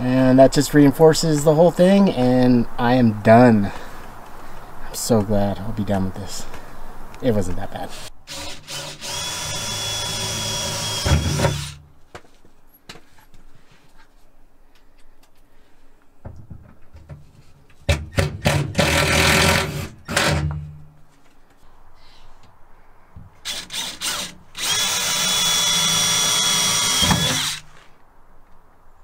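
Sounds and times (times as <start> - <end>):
cordless drill drilling into steel: 7.9 - 11.8, 23.4 - 27.8.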